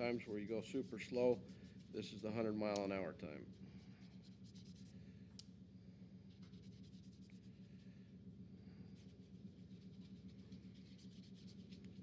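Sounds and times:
brush swishing on paper: 0:00.0 - 0:02.4
steady low hum: 0:00.0 - 0:12.0.

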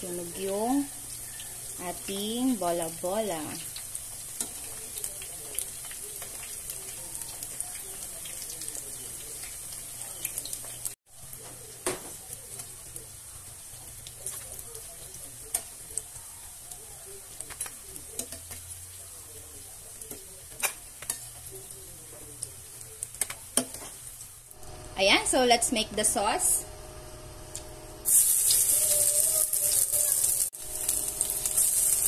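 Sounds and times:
oil sizzling and crackling: 0:00.0 - 0:26.4, 0:27.4 - 0:32.0
metal tongs clicking on pan: 0:15.5 - 0:15.7, 0:17.4 - 0:18.6, 0:20.0 - 0:21.4, 0:23.0 - 0:23.9.

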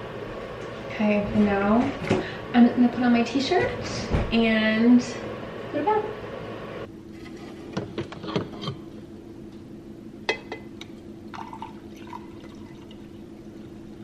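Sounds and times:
coffee pouring into a mug: 0:11.3 - 0:13.2.

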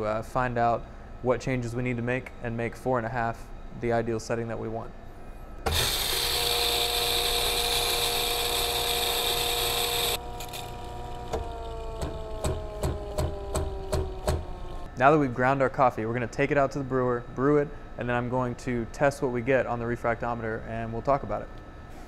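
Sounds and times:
coffee grinder whirring: 0:05.7 - 0:14.9
motor spinning down: 0:05.7 - 0:14.9.

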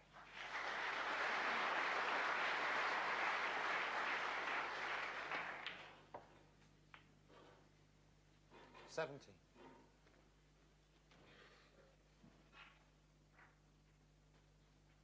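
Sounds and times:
audience clapping: 0:00.0 - 0:06.3.

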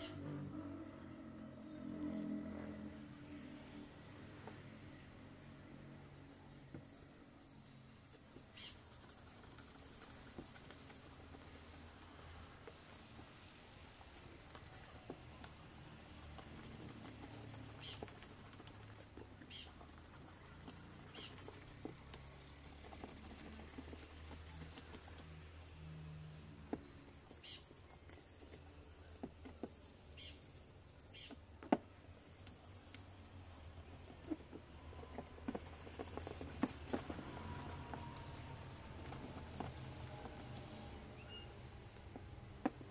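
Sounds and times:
plastic brush scratching metal: 0:08.2 - 0:25.3, 0:26.9 - 0:41.0
brush clicking and tapping metal: 0:08.3 - 0:25.3, 0:26.9 - 0:40.7.

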